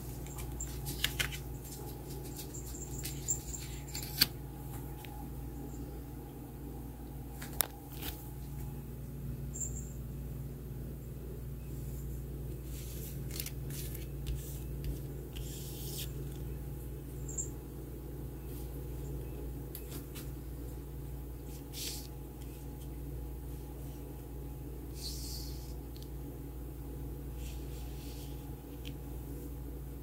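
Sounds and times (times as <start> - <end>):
cards rustling on cloth: 0.0 - 5.2, 12.5 - 16.5, 21.4 - 24.2
steady low hum: 0.0 - 30.0.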